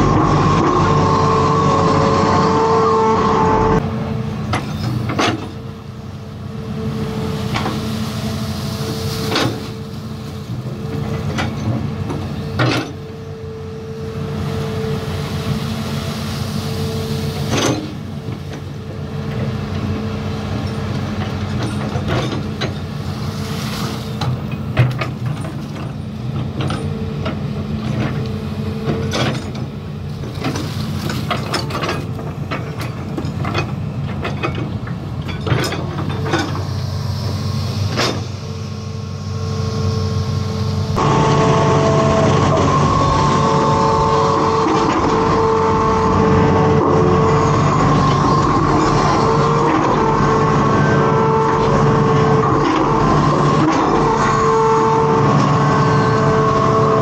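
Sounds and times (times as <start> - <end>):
excavator diesel engine running: 0.0 - 57.0
machine clanks and knocks: 4.4 - 5.7, 10.9 - 13.1, 20.6 - 22.9, 24.2 - 36.7.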